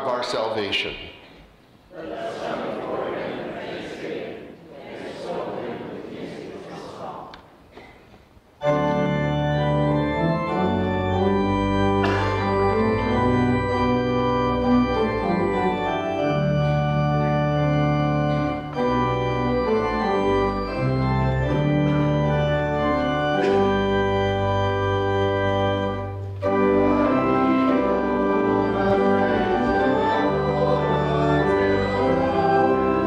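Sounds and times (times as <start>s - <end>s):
organ playing held chords: 8.6s - 33.0s.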